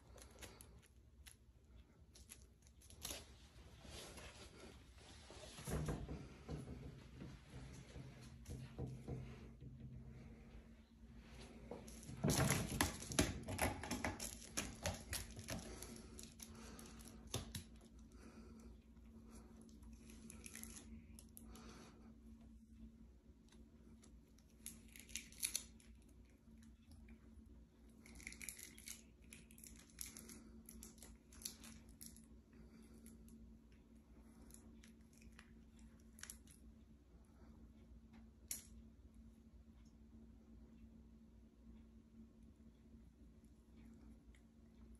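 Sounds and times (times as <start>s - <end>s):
tape crinkles and clicks: 0.0s - 3.4s, 23.5s - 27.2s.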